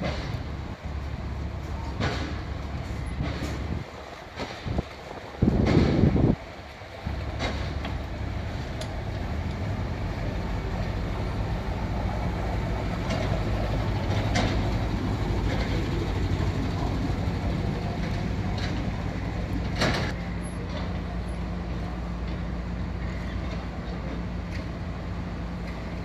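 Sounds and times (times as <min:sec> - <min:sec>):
boat engine droning: 0:00.0 - 0:26.0
faint clicks: 0:08.8 - 0:09.6.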